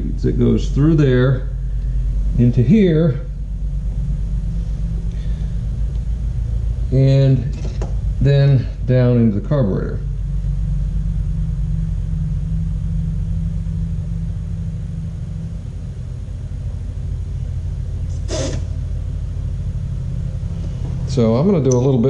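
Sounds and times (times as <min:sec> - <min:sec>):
machinery humming: 0:00.0 - 0:22.0
short scrape or click: 0:18.1 - 0:18.7.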